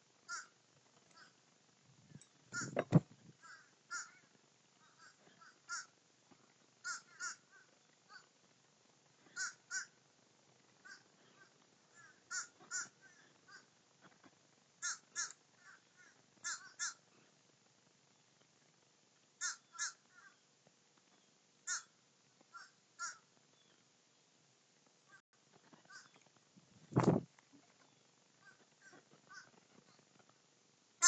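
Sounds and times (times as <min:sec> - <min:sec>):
crows cawing: 0:00.3 - 0:01.4, 0:02.6 - 0:02.8, 0:03.4 - 0:06.0, 0:06.8 - 0:08.3, 0:09.2 - 0:10.0, 0:10.8 - 0:13.8, 0:14.8 - 0:17.1, 0:19.4 - 0:20.4, 0:21.6 - 0:23.3, 0:25.8 - 0:26.2, 0:28.4 - 0:29.6.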